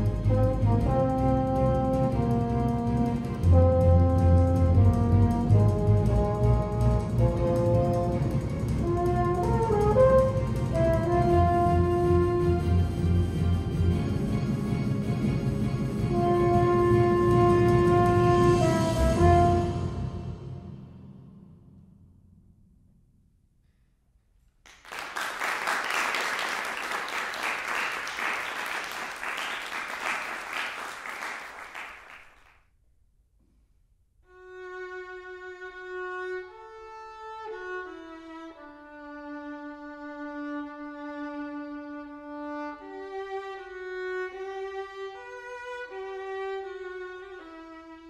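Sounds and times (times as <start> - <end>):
audience applauding: 24.7 - 32.5.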